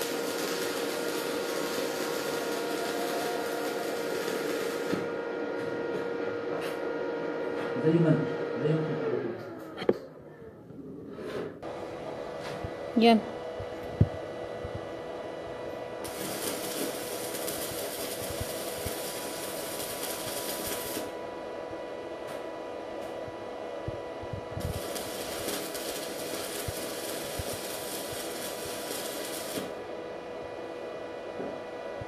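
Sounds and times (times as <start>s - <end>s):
welding arc crackling: 0.0s - 5.2s, 14.9s - 21.3s, 24.0s - 29.9s
steady hum: 0.0s - 32.0s.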